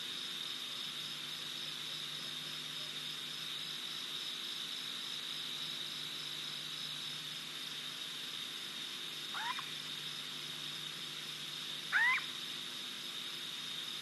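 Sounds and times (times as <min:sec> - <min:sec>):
insects chirring: 0:00.0 - 0:14.0
upward-sweeping animal calls: 0:09.3 - 0:09.7, 0:11.9 - 0:12.3.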